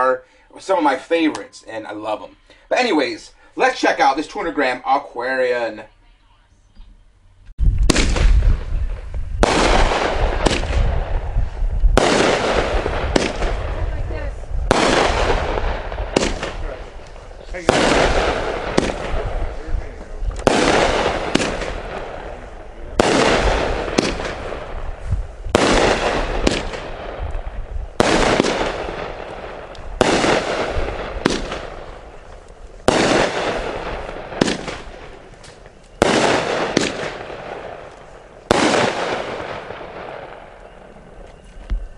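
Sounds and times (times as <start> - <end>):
firework bangs with echo: 7.8 - 40.6
faint firework pops: 12.0 - 13.6, 14.7 - 22.1, 23.0 - 27.4, 28.0 - 39.5.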